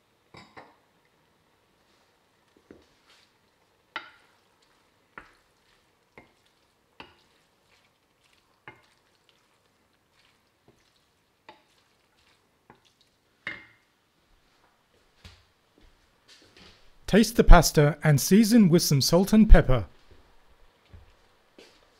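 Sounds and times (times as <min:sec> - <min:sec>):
spoon stirring spaghetti in pan: 0:00.3 - 0:14.7.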